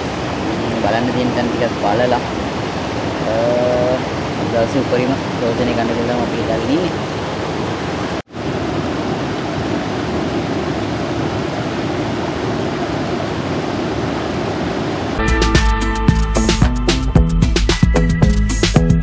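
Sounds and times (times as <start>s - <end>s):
river rapids rushing: 0.0s - 15.3s
music: 15.2s - 19.0s.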